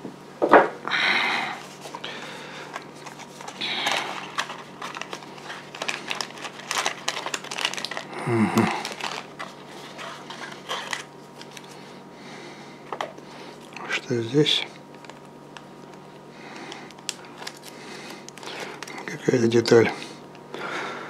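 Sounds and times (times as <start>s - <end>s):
packaging rustle: 1.6s - 11.9s, 16.4s - 19.8s.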